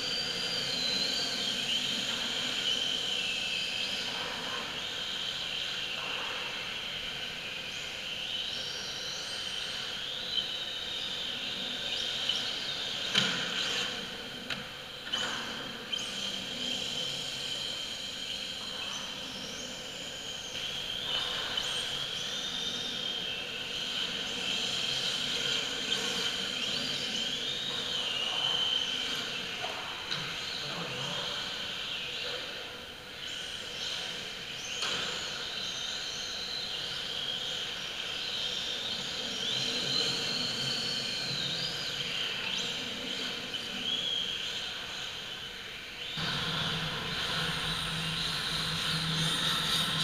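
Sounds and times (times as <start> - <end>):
electric rc car motors whining: 46.2 - 50.0.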